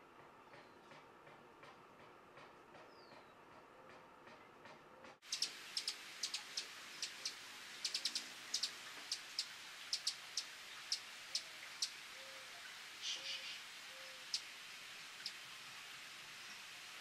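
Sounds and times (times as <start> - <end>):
hummingbird chip calls: 5.0 - 14.5, 15.1 - 15.5
background hiss: 5.2 - 17.0.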